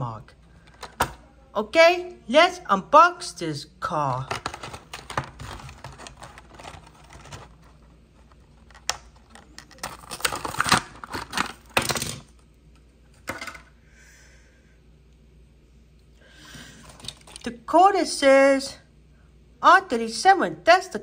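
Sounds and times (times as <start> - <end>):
cardboard tearing: 5.1 - 7.9.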